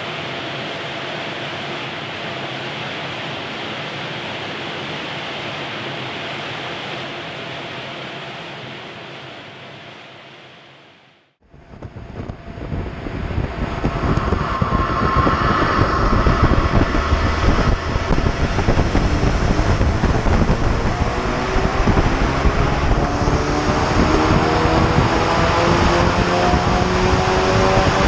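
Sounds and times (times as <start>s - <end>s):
turbocharged engine revving: 12.2s - 28.0s.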